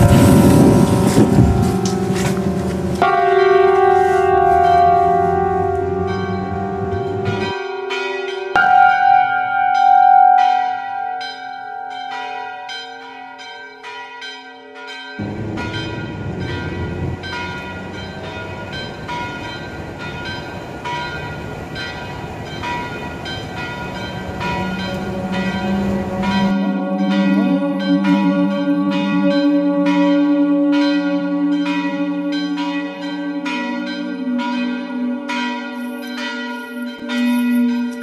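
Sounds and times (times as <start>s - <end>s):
loud steady rushing rumble: 0.0s - 3.0s, 15.2s - 26.5s
church bells ringing: 0.0s - 38.0s.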